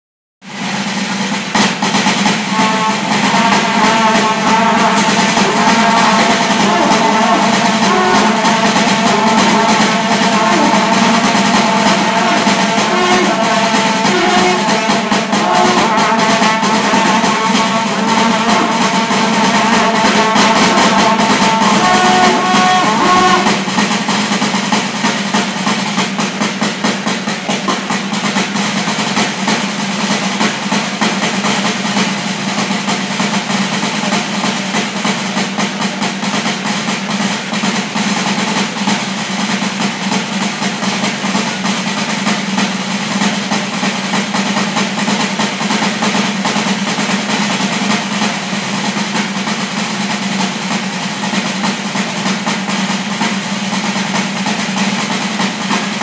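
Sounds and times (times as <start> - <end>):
drum kit playing: 0.4 - 56.0
brass horns blaring a tune: 2.0 - 24.9
steady low drone: 2.5 - 23.8.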